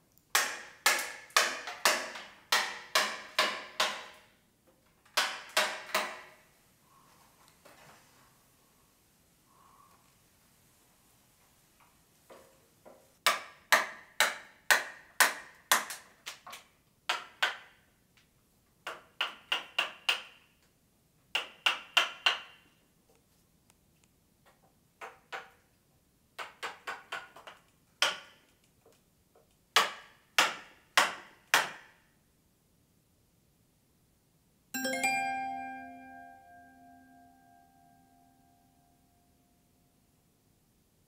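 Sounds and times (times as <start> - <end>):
mallet striking chisel into wood: 0.4 - 4.2, 5.2 - 6.2, 13.2 - 15.9.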